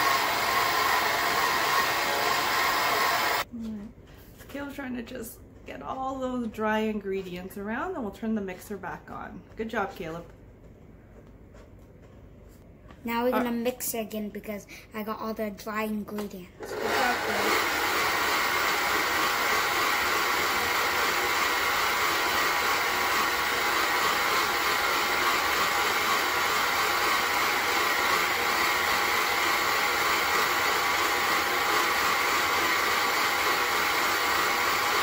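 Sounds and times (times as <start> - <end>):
stand mixer motor running: 0.0 - 3.4, 16.6 - 35.0.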